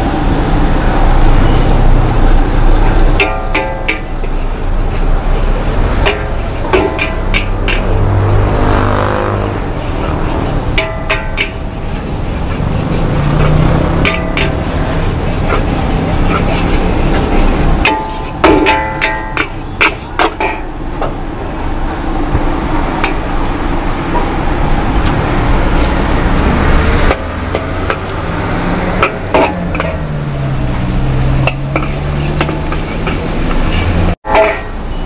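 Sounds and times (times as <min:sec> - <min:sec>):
food sizzling: 0:00.0 - 0:35.0
metal spatula clanging on wok: 0:03.0 - 0:04.6, 0:05.9 - 0:08.0, 0:10.6 - 0:12.0, 0:13.4 - 0:14.8, 0:15.5 - 0:20.8, 0:29.0 - 0:30.2, 0:31.1 - 0:35.0.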